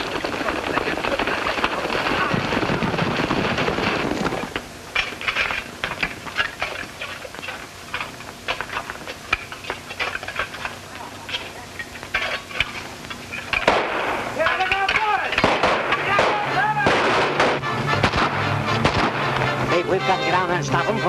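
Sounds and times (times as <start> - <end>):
dense rushing noise: 0.0 - 4.9
gunshots: 13.5 - 19.6.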